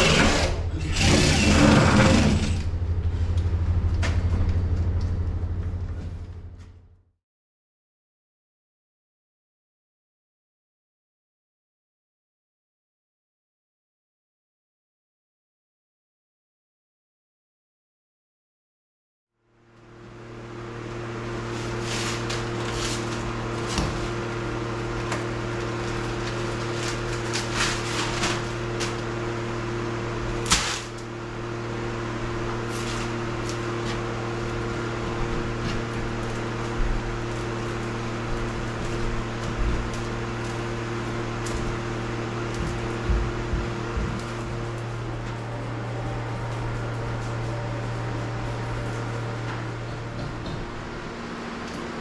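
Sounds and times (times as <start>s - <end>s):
steady electrical hum: 0.0s - 7.0s, 19.5s - 52.0s.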